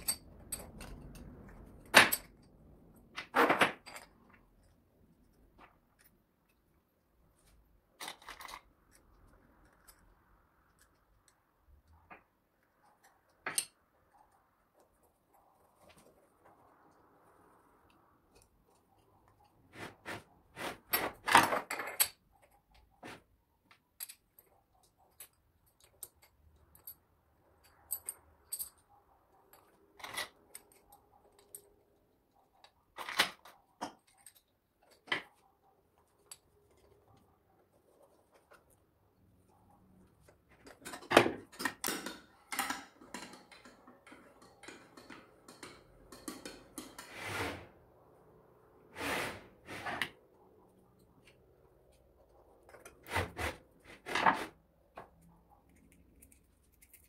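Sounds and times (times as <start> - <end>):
metal clicks and clinks: 0.0 - 4.8, 23.7 - 32.0, 40.6 - 47.1.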